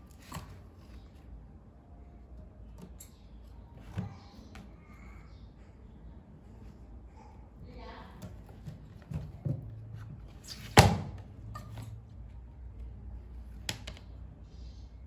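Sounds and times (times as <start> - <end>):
hardcover book knocks and slaps: 8.2 - 11.8.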